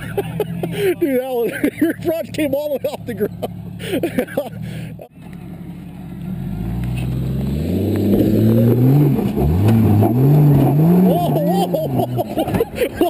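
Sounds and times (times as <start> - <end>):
engine revving hard under load: 6.3 - 12.6.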